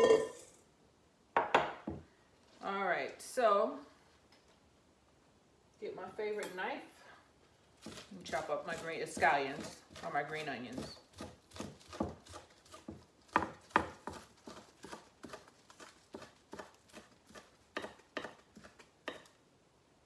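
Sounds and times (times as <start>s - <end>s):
knife chopping on wooden board: 10.7s - 19.3s.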